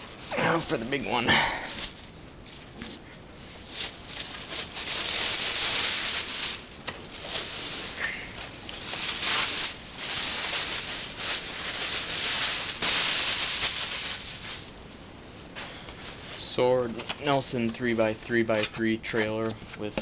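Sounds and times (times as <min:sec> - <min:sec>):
paper and cardboard rustling: 0:00.0 - 0:14.7.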